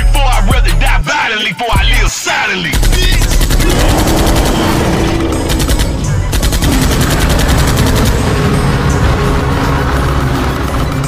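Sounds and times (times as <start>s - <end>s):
hip-hop beat with heavy bass: 0.0s - 6.4s
automatic gunfire bursts: 2.7s - 8.2s.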